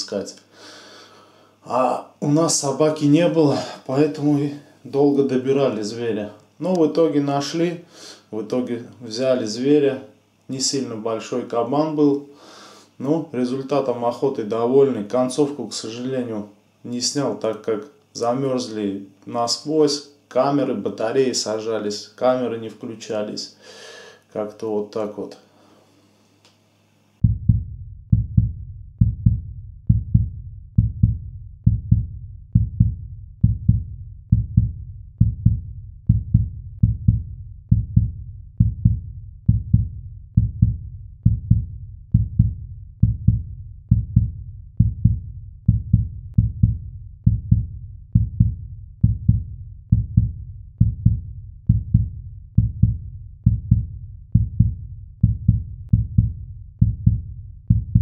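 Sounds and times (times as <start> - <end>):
deep heartbeat-like thumping: 27.2 - 58.0.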